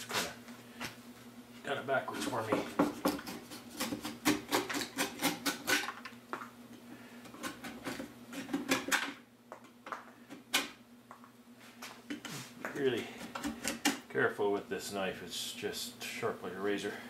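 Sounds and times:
knife scraping wood: 2.1s - 5.8s.

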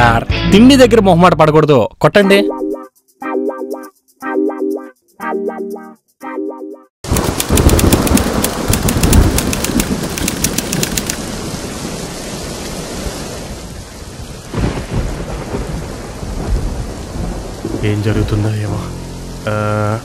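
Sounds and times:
rolling thunder: 7.1s - 18.4s
heavy rain: 7.1s - 20.0s.

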